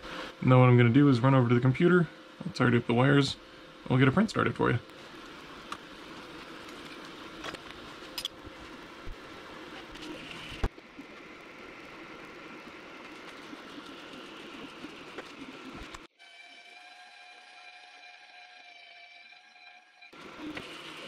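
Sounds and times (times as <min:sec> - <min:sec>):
printer fan hum: 0:00.0 - 0:16.1.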